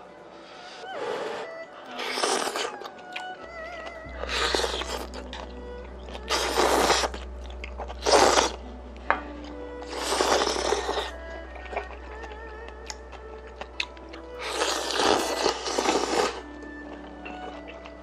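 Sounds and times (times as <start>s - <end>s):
man slurping noodles: 1.1s - 2.8s, 6.3s - 7.2s, 8.0s - 8.6s, 9.8s - 11.2s, 14.4s - 16.5s
chewing: 1.8s - 8.7s, 9.4s - 18.0s.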